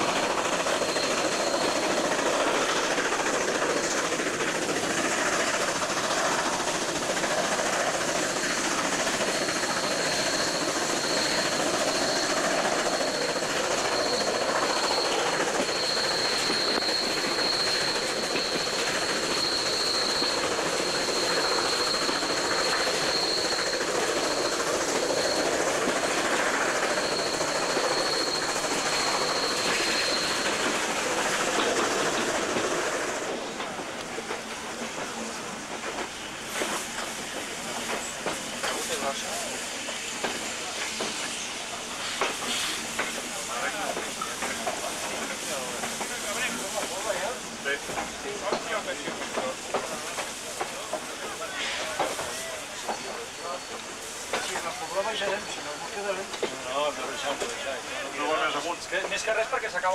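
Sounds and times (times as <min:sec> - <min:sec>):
high thin wheel squeal: 0:00.0 - 0:33.6, 0:36.2 - 0:58.7
train wheels rolling on rails: 0:00.0 - 0:59.9.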